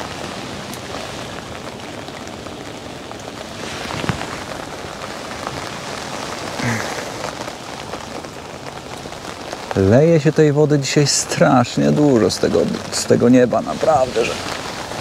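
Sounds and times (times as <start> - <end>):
heavy rain on umbrella and water: 0.0 - 15.0.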